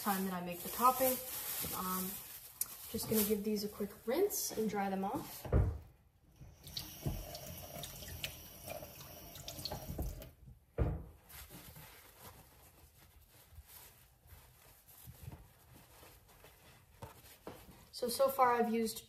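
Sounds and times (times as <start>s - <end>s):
tap water running: 6.4s - 10.4s.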